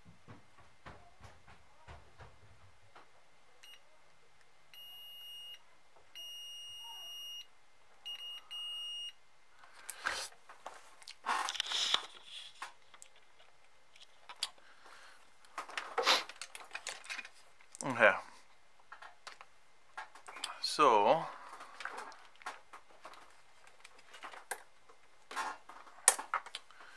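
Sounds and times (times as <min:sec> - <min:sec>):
multimeter beeping: 0:06.2 - 0:07.5, 0:08.1 - 0:09.2.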